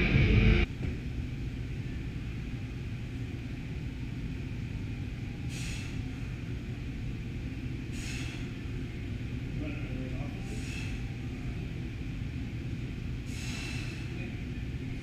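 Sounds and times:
low room rumble: 0.0s - 15.0s
person exhaling with a hiss: 5.5s - 6.0s, 7.9s - 8.5s, 13.3s - 14.2s.

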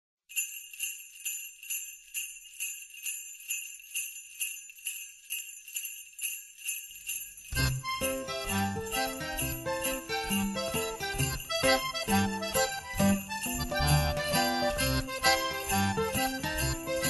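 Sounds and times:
sleigh bells shaken: 0.3s - 17.0s
band playing with bass: 7.6s - 17.0s.

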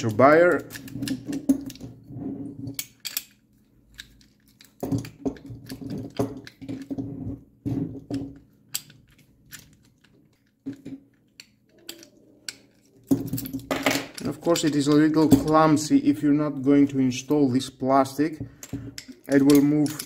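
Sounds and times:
metal lock sections clacking: 0.0s - 2.0s, 2.7s - 7.0s, 7.9s - 16.9s, 18.2s - 20.0s.

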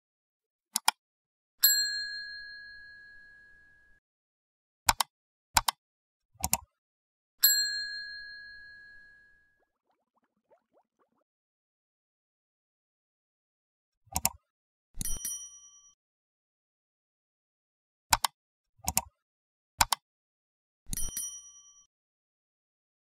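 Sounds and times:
sound-effect clicks: 0.7s - 1.0s, 4.9s - 5.8s, 6.4s - 6.7s, 14.1s - 15.3s, 18.1s - 19.2s, 19.8s - 20.0s
bright bell ding: 1.6s - 4.0s, 7.4s - 9.4s.

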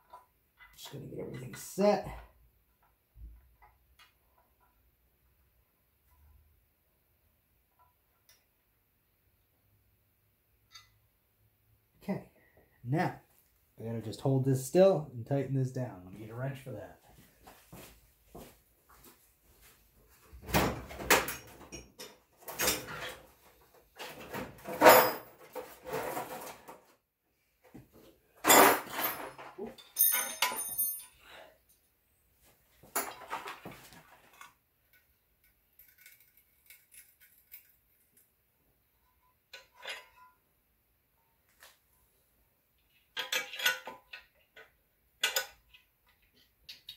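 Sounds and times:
metal tools clinking: 28.4s - 31.8s, 43.2s - 44.4s.

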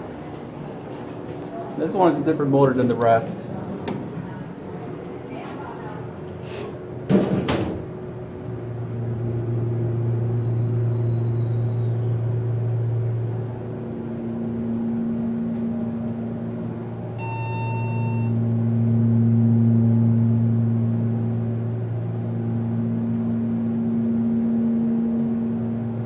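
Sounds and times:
elevator pump motor humming: 0.0s - 26.0s
knocks and thump: 7.1s - 7.8s.

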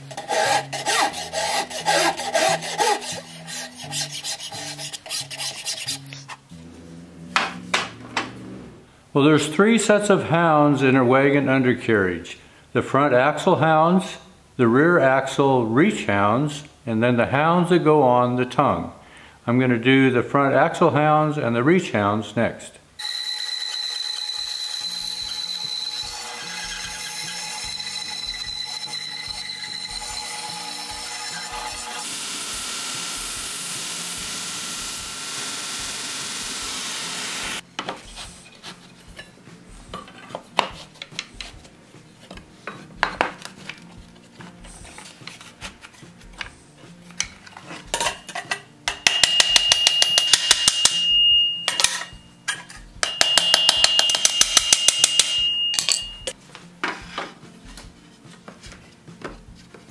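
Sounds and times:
band saw cutting wood: 0.0s - 6.3s, 23.0s - 37.6s
background music with steady beat: 37.6s - 59.9s
hammer ringing on iron: 48.9s - 52.1s, 53.0s - 56.3s.

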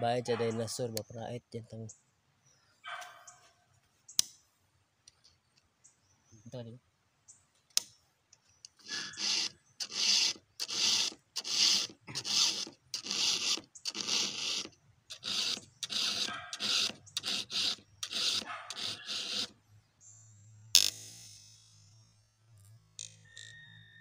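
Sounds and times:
file strokes on chainsaw chain: 8.8s - 19.5s.

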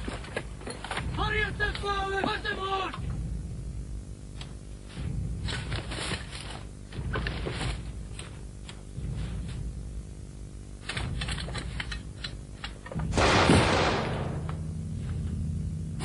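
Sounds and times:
burst of gunfire: 13.1s - 14.7s
gunshots: 13.1s - 14.7s.

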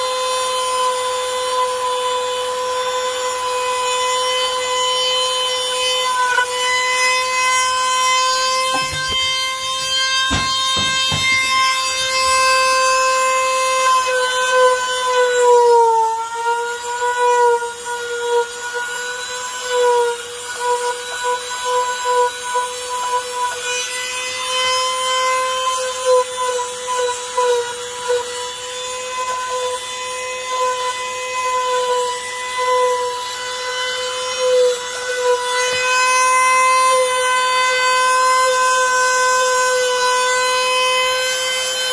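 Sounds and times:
power tool high whine: 0.0s - 41.9s
rasping grinding noise: 4.5s - 18.8s.

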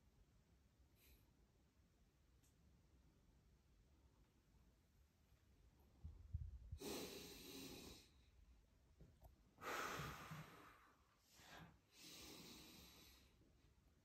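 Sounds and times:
man breathing deeply: 9.6s - 13.4s.

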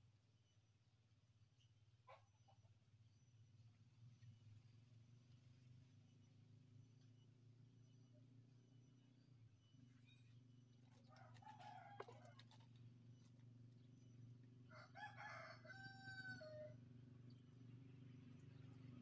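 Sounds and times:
rooster crowing faintly: 10.9s - 12.8s.

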